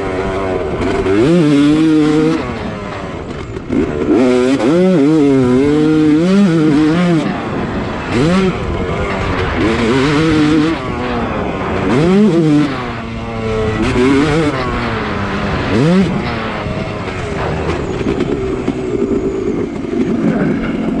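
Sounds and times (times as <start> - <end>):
dirt bike engine revving: 0.0 - 20.8.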